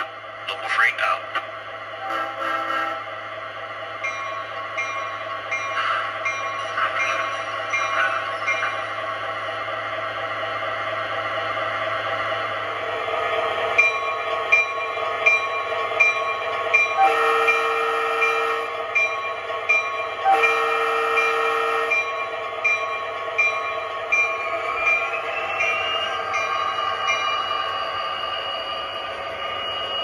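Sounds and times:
model locomotive diesel engine sound: 0.0s - 30.0s
train horn blasts: 2.0s - 3.1s, 17.0s - 18.7s, 20.2s - 22.0s.

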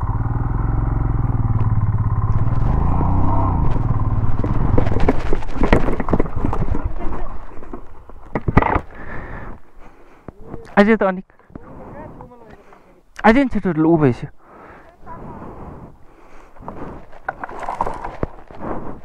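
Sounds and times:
motorcycle engine revving: 0.0s - 7.0s
motorcycle falling and clattering: 2.2s - 9.0s.

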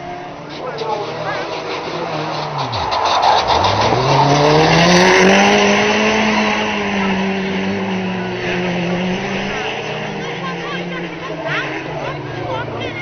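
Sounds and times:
race car engine revving: 0.0s - 13.0s
tyres skidding on tarmac: 0.0s - 13.0s.

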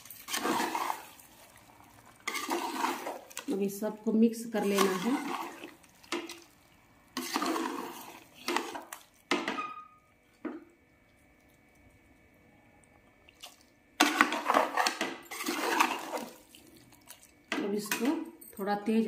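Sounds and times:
spoon scraping a pan: 0.0s - 1.3s, 2.2s - 3.5s, 4.4s - 6.5s, 7.1s - 10.0s, 14.0s - 16.4s.

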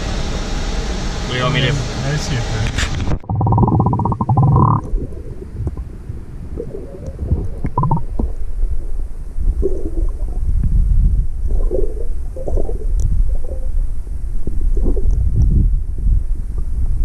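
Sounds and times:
underwater water rumble: 2.8s - 17.0s
bubbling gurgles: 3.1s - 15.8s.

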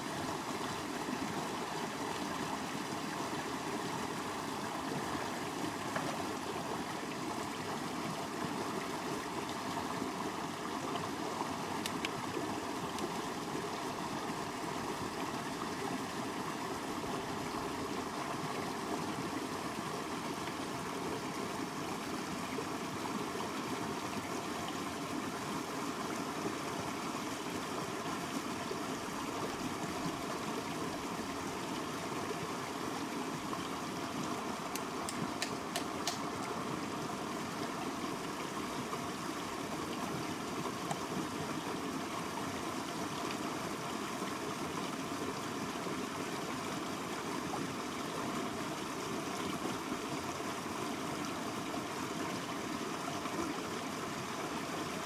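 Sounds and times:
river cascade over rocks: 0.0s - 55.0s
sharp clicks: 34.8s - 36.2s.

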